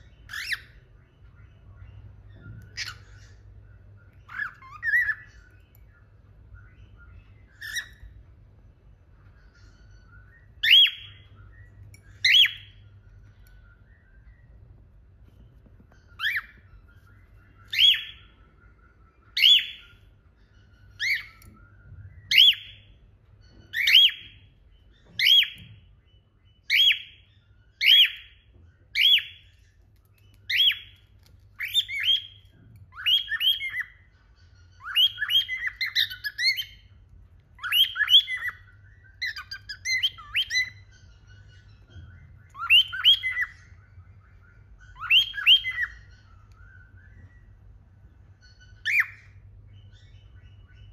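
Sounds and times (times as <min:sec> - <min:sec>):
cockatiel whistled calls: 0:00.0 - 0:08.2, 0:09.2 - 0:47.6, 0:48.4 - 0:50.9.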